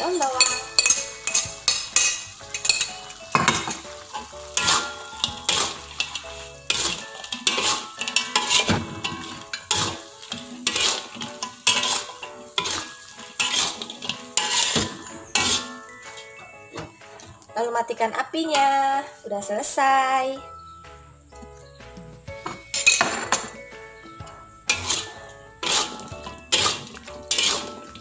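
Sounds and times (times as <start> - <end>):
sauce sizzling: 0.0 - 17.6, 23.6 - 28.0
metal spatula scraping a wok: 0.4 - 16.4, 24.7 - 28.0.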